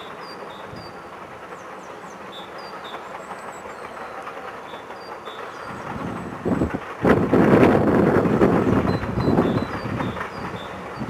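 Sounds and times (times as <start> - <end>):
distant train rumbling on track: 0.0 - 11.0
wind buffeting microphone: 5.4 - 11.0.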